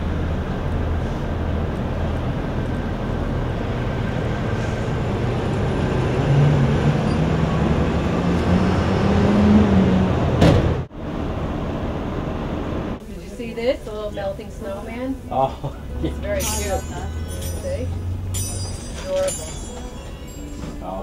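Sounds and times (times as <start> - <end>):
vehicle engine running: 0.0 - 9.0
city street traffic: 0.0 - 21.0.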